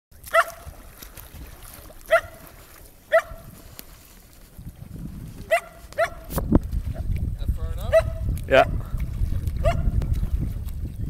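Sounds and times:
dog barking: 0:00.3 - 0:00.6, 0:02.1 - 0:02.4, 0:03.1 - 0:03.5, 0:05.5 - 0:06.3, 0:07.9 - 0:08.2, 0:09.6 - 0:10.0.

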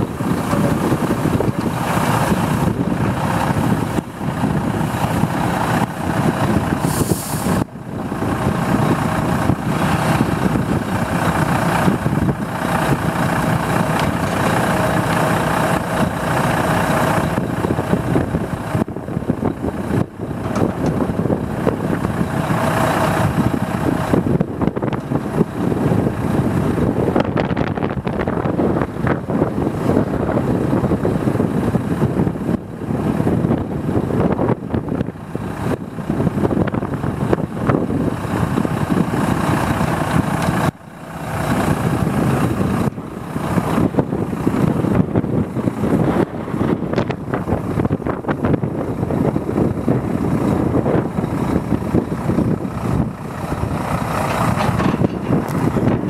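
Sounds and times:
excavator diesel engine running: 0:00.0 - 0:56.0
short hiss: 0:06.9 - 0:07.6.

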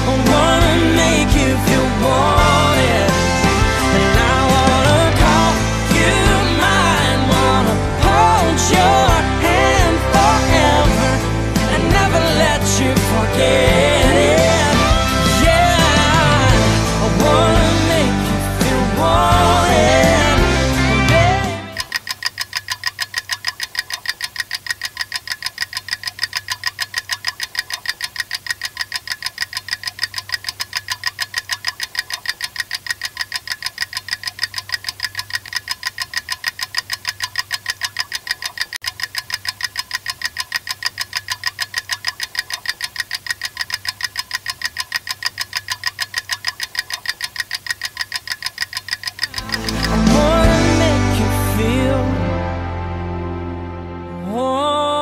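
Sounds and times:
music: 0:00.0 - 0:21.8, 0:49.4 - 0:55.0
rapid metallic ticking: 0:00.0 - 0:50.7.

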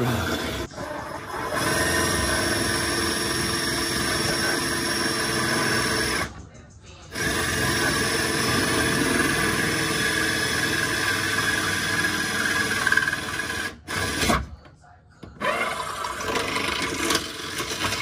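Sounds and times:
power drill grinding through steel: 0:00.0 - 0:06.3, 0:07.1 - 0:14.4, 0:15.4 - 0:18.0.

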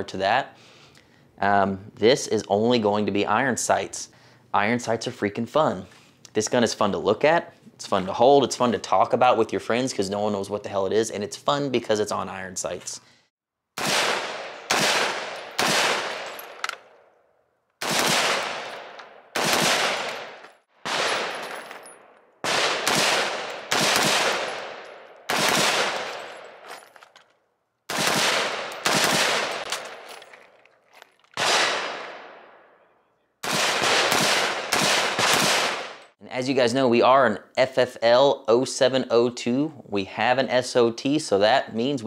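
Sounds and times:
rifle shots with echo: 0:13.8 - 0:16.8, 0:17.8 - 0:21.6, 0:22.4 - 0:26.6, 0:27.9 - 0:30.1, 0:31.4 - 0:32.8, 0:33.4 - 0:36.0.

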